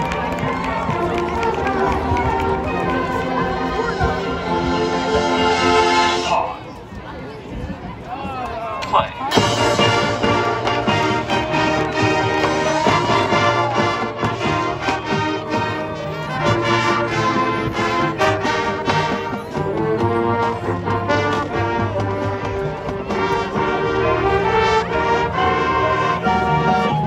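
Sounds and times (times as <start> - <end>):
brass section playing: 0.0 - 6.6, 9.3 - 27.0
percussion hits: 8.8 - 15.7
mallet instruments: 8.8 - 16.4.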